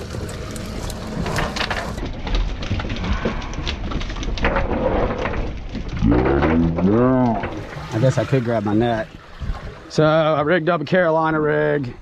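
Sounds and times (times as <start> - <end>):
fish flapping on deck: 0.0 - 5.6
wet net emptied onto boat deck: 6.2 - 10.3.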